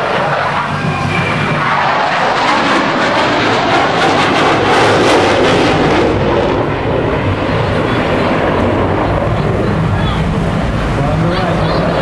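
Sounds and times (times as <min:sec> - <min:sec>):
jet engines roaring: 0:00.0 - 0:12.0.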